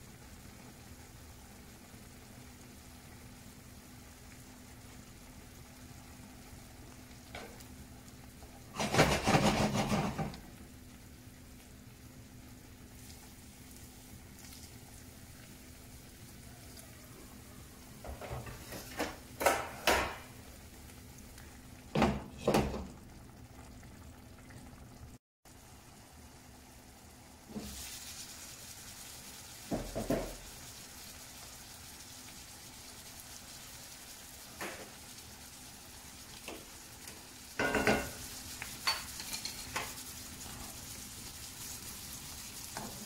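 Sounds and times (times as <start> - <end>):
glass lid clattering on skillet: 37.6 - 38.2.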